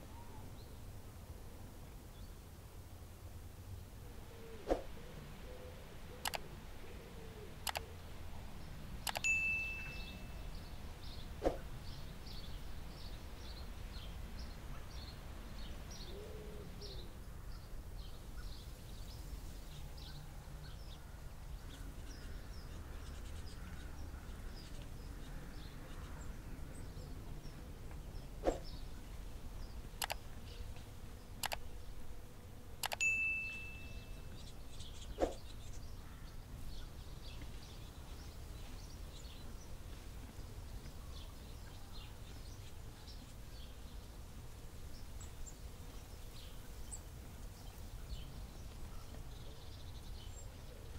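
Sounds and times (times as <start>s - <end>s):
faint background hiss: 0.0s - 50.9s
small birds chirping: 4.5s - 50.9s
mouse clicks: 6.2s - 6.4s, 7.6s - 7.9s, 9.0s - 9.3s, 30.0s - 30.2s, 31.4s - 31.6s
short bell ding: 9.2s - 10.5s, 33.0s - 34.3s.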